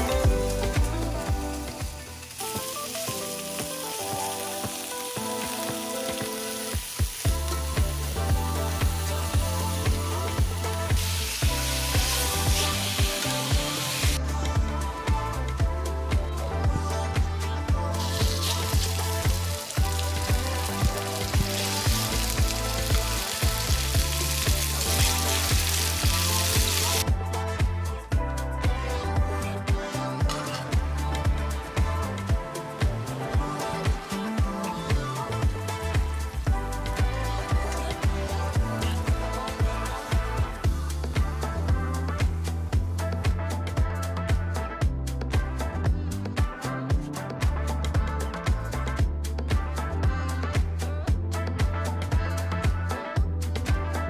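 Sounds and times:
background music with beat: 0.0 - 54.0
meat sizzling in hot oil: 0.5 - 14.2, 18.0 - 27.0, 32.6 - 41.3.

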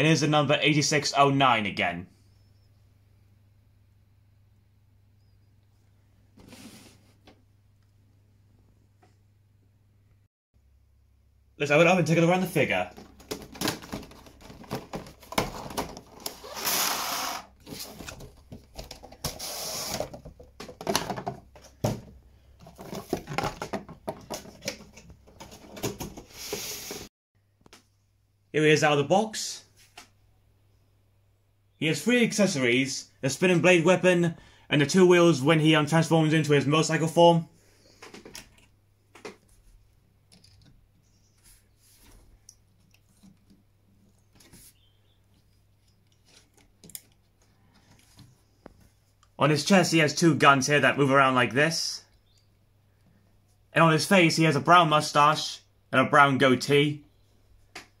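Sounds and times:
cardboard and plastic rustling: 12.4 - 16.7, 17.6 - 27.1.

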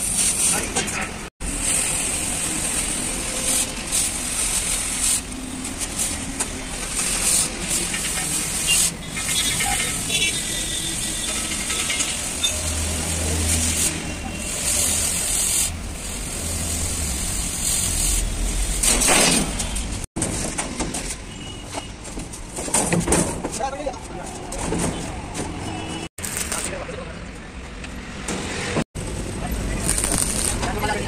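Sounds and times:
cutting torch hissing: 1.4 - 19.1.

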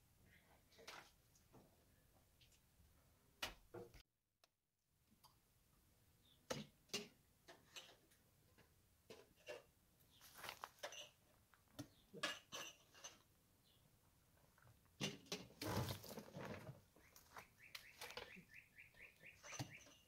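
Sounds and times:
kitchenware clinking and clattering: 6.5 - 9.7, 10.4 - 11.2, 12.1 - 13.3
bird chirping: 17.0 - 20.0.

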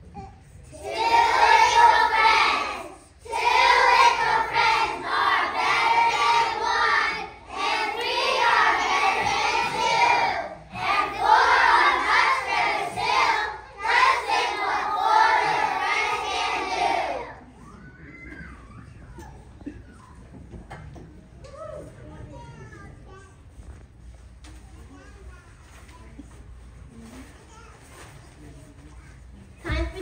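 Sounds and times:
children singing in unison: 0.8 - 17.3.

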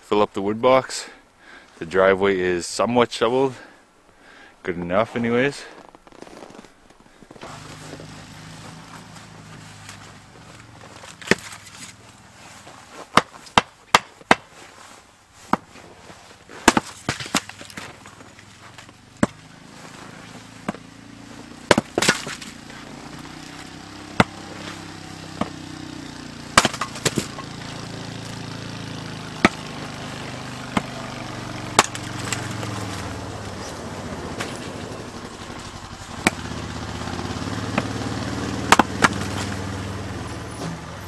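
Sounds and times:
engine hum: 3.3 - 41.0
axe splitting firewood: 5.7 - 40.8
split wood pieces falling: 8.6 - 38.0, 38.7 - 39.8.

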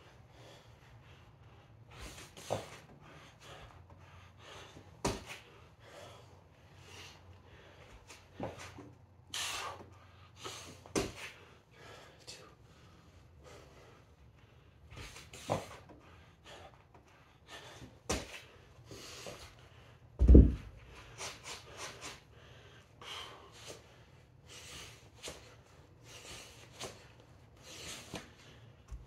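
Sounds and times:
man breathing hard: 0.0 - 29.0
heavy thud: 20.2 - 20.8.

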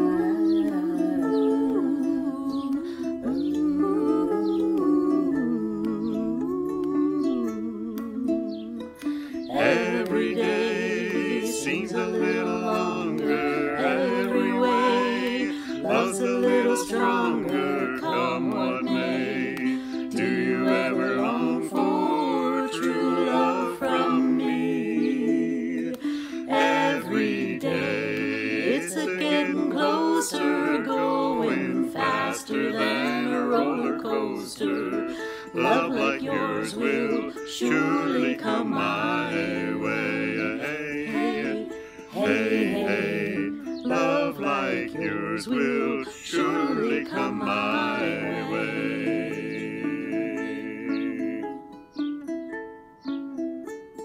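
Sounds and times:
voices singing: 0.0 - 52.1
ukulele strumming: 0.0 - 54.0.

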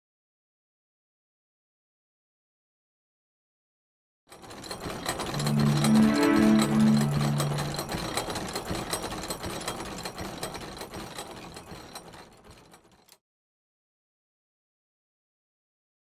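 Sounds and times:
low hum: 5.3 - 8.3.

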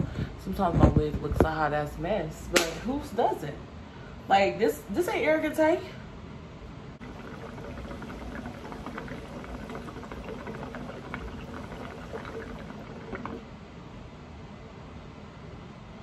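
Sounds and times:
hookah water bubbling: 7.0 - 13.6.

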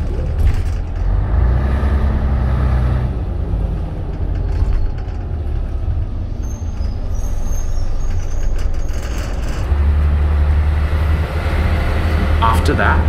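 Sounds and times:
bus engine and road rumble: 0.0 - 13.0
faint high squeaks: 6.3 - 9.6.

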